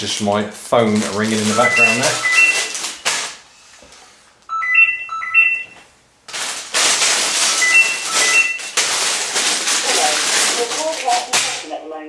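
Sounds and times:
plastic bags crinkling: 0.0 - 3.5, 6.2 - 11.8
phone ringing chime: 1.5 - 2.7, 4.5 - 5.8, 7.6 - 8.7.

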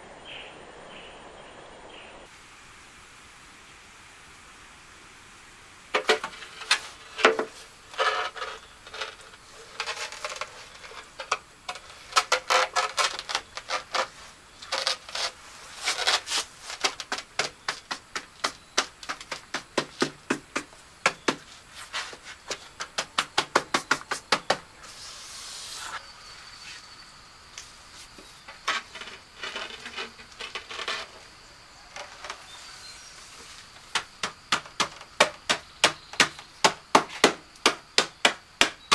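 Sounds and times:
hand tools tapping and knocking: 6.0 - 15.2, 16.7 - 24.7, 33.9 - 38.9
short hiss: 24.8 - 26.9.

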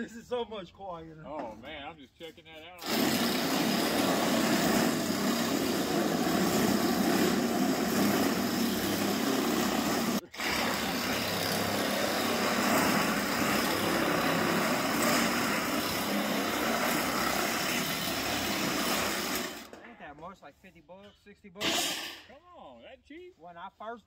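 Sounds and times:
drill metal shear cutting steel: 2.8 - 19.8.

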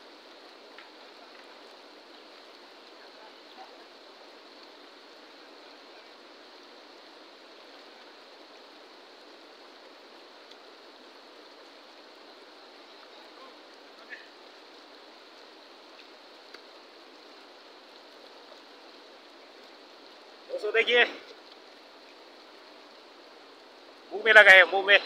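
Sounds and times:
river rushing over rocks: 0.0 - 25.0
faint ticks: 0.4 - 3.7, 4.5 - 4.8, 10.4 - 10.7, 12.8 - 20.3, 21.2 - 23.1.

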